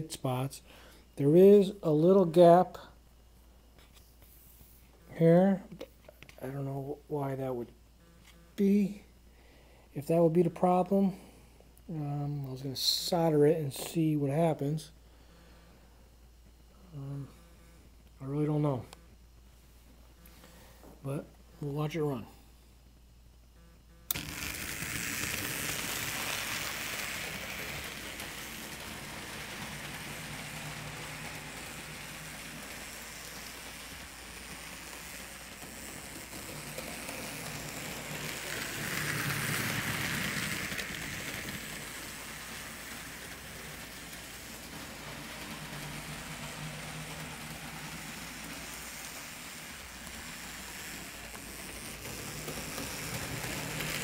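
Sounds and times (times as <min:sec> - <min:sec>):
model train running on track: 0:24.1 - 0:54.0.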